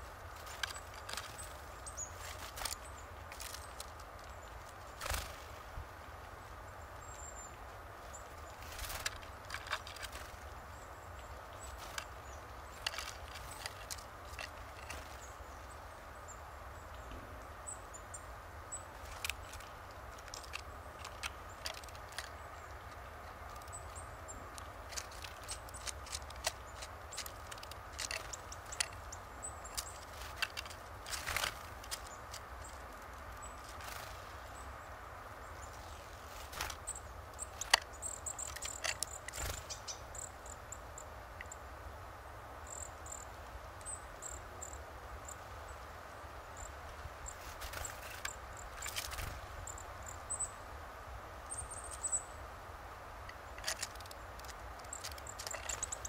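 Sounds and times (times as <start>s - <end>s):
bird pecking seeds on wood: 0.2s - 5.5s, 8.4s - 15.8s, 18.9s - 34.4s, 35.6s - 40.3s, 47.3s - 49.8s, 53.2s - 56.0s.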